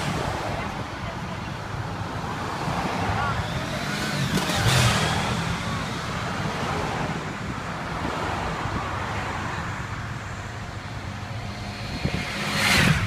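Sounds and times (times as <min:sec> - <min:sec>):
traffic rumble: 0:00.0 - 0:13.0
vehicle passing close: 0:10.5 - 0:13.0.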